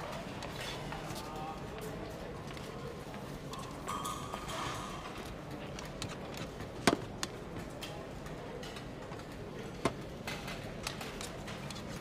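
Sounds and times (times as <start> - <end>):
canteen room tone: 0.0 - 12.0.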